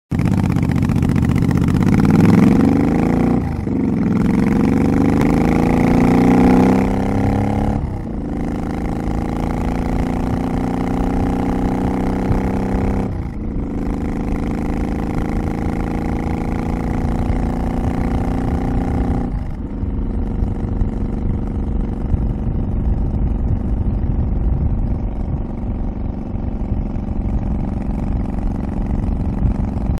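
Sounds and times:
motorcycle engine accelerating: 0:00.1 - 0:30.0.

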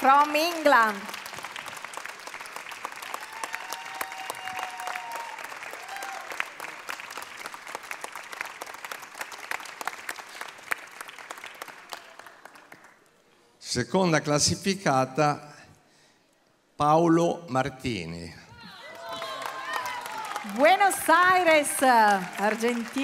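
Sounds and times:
audience applauding: 0:00.0 - 0:13.1, 0:18.6 - 0:23.0.

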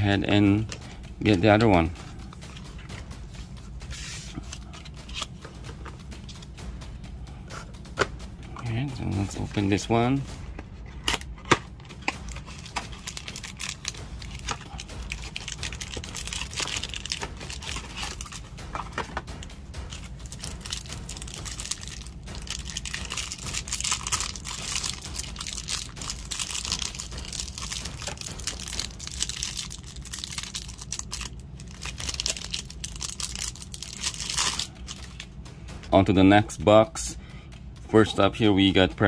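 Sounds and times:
plastic wrapper crinkling and tearing: 0:11.1 - 0:19.1, 0:20.3 - 0:35.2.

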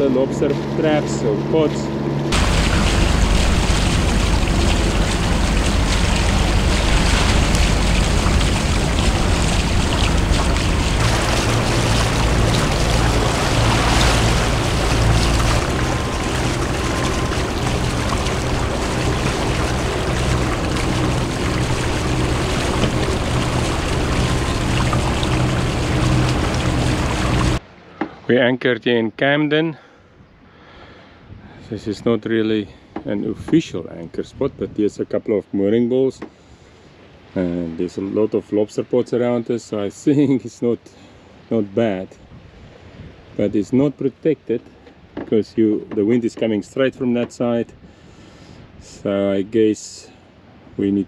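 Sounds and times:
motorboat engine running: 0:00.0 - 0:27.6
wind noise on microphone: 0:31.2 - 0:31.7, 0:42.2 - 0:43.4.

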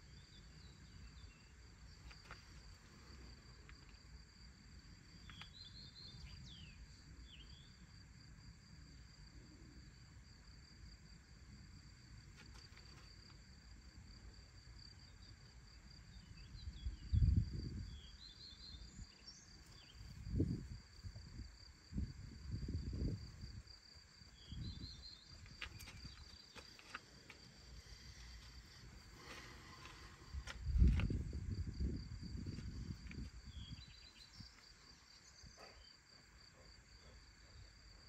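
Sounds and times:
insects chirring: 0:00.0 - 0:38.0.

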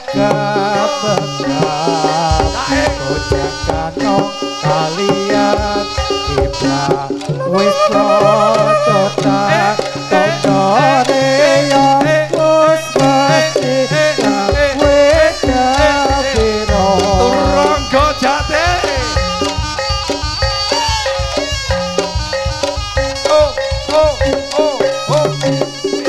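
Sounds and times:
drumming and gamelan percussion: 0:00.0 - 0:26.0
steady low drumbeat: 0:00.1 - 0:25.8.

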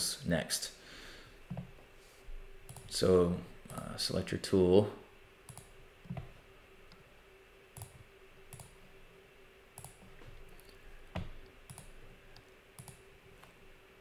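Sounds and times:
faint steady hum: 0:00.0 - 0:14.0
computer mouse clicking: 0:02.7 - 0:02.9, 0:05.5 - 0:06.3, 0:07.8 - 0:08.8, 0:09.8 - 0:13.6.

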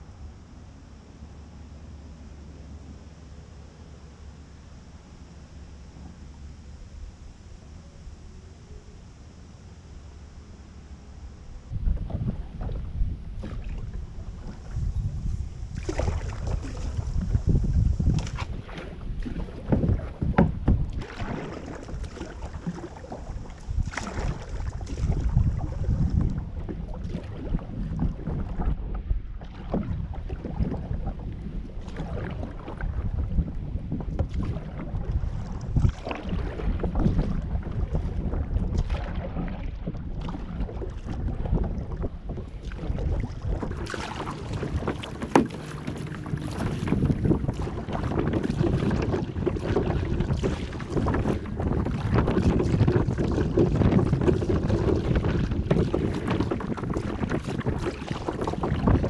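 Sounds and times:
wind rumbling on microphone: 0:04.6 - 0:59.0
paddle splashing in water: 0:11.7 - 0:59.0.

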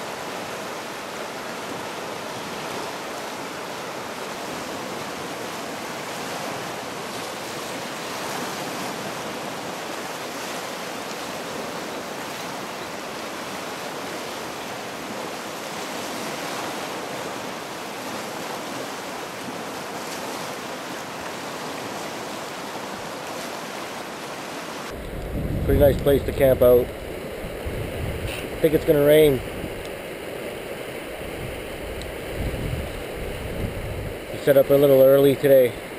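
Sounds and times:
river rapids rushing over rocks: 0:00.0 - 0:25.2.

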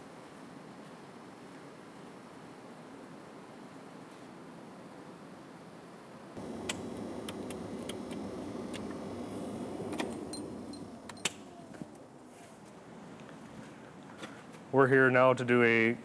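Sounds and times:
switches clicking: 0:06.4 - 0:12.0
machine whirring: 0:06.4 - 0:12.2.

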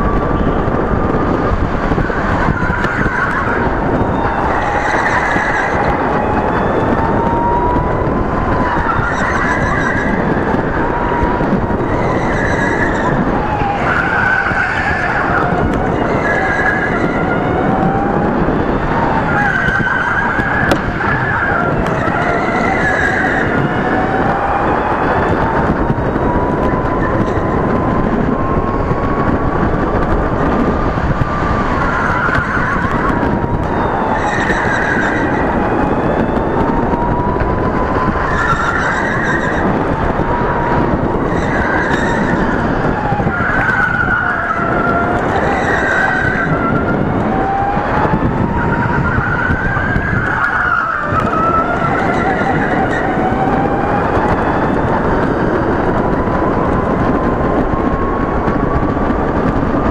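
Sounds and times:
chassis and tyre rumble: 0:00.0 - 0:59.9
tyre squeals: 0:08.6 - 0:10.2, 0:11.8 - 0:13.2.

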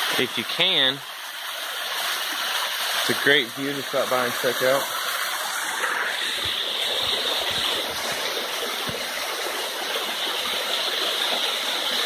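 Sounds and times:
water splashing down rock: 0:03.1 - 0:12.0.

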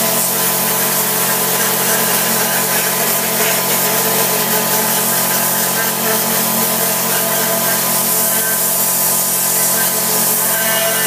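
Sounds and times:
compressed air blasting hiss: 0:00.0 - 0:11.0.

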